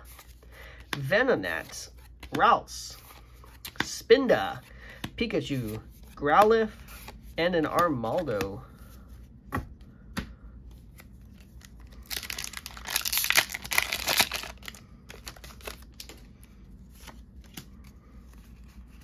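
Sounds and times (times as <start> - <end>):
cards rustling and clicking: 0.0 - 8.9, 9.5 - 19.0
foil wrapper tearing and crinkling: 12.0 - 16.1.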